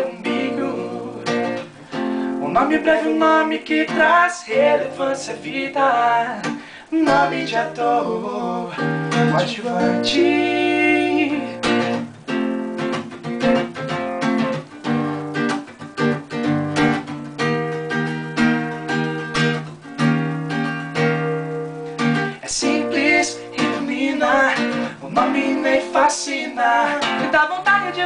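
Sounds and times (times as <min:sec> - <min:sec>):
acoustic guitar strumming chords: 0:00.0 - 0:28.0.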